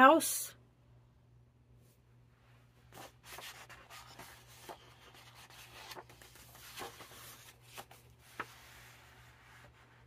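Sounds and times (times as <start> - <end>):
paper pages turning: 2.9 - 10.0.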